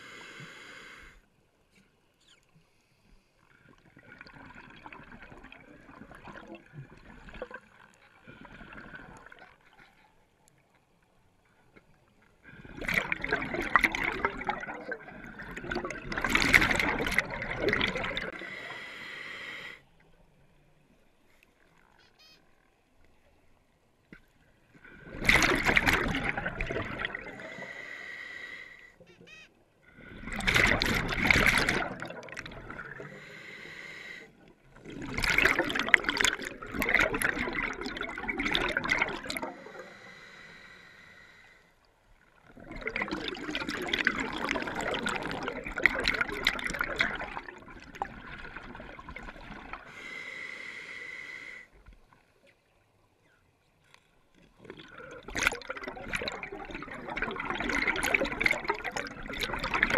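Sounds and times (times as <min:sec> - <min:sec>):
diver breathing through regulator: 0:00.0 - 0:01.3, 0:18.1 - 0:19.9, 0:27.2 - 0:29.0, 0:32.9 - 0:34.4, 0:39.4 - 0:41.8, 0:49.8 - 0:51.8
exhaust bubbles rushing: 0:12.7 - 0:18.4, 0:25.1 - 0:27.4, 0:30.3 - 0:33.0, 0:34.8 - 0:39.5, 0:42.5 - 0:49.8, 0:54.7 - 0:59.9.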